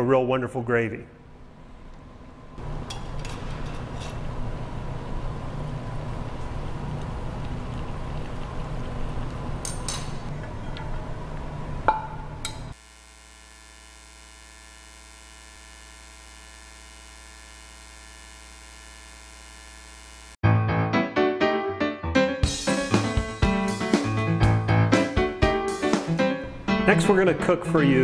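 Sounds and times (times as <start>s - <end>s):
steady electrical hum: 0.0s - 20.4s.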